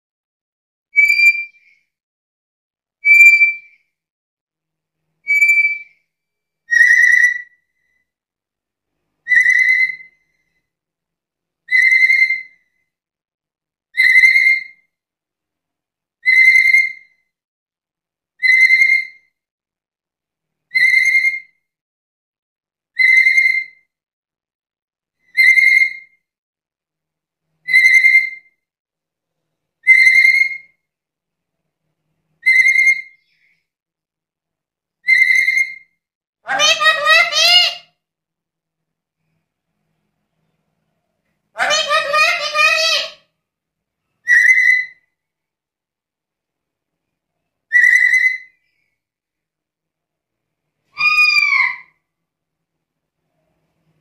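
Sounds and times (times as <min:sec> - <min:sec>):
parrot whistled call: 0:01.0 - 0:01.6, 0:03.0 - 0:03.7, 0:05.2 - 0:06.0, 0:06.7 - 0:07.6, 0:09.2 - 0:10.2, 0:11.7 - 0:12.6, 0:14.0 - 0:14.9, 0:16.2 - 0:17.1, 0:18.4 - 0:19.2, 0:20.7 - 0:21.6, 0:23.0 - 0:23.9, 0:25.3 - 0:26.2, 0:27.6 - 0:28.6, 0:29.8 - 0:30.8, 0:32.4 - 0:33.2, 0:35.0 - 0:37.8, 0:44.2 - 0:45.1, 0:47.7 - 0:48.6, 0:51.0 - 0:52.0.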